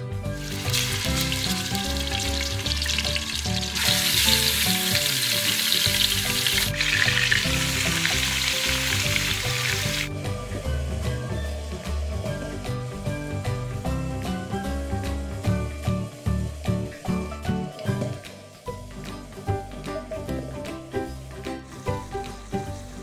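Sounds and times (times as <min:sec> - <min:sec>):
background music: 0:00.0 - 0:23.0
meat sizzling in hot oil: 0:00.2 - 0:19.7, 0:20.9 - 0:23.0.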